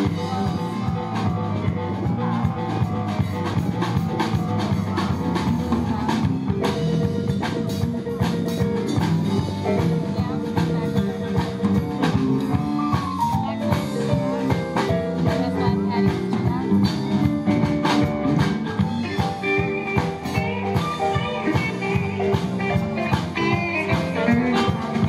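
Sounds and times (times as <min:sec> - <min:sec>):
live blues band playing: 0:00.0 - 0:25.0.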